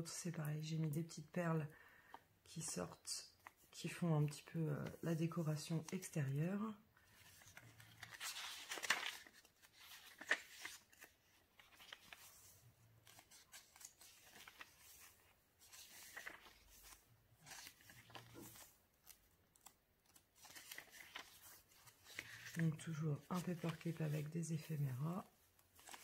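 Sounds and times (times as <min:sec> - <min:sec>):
paper pages rustling: 0:07.0 - 0:26.0.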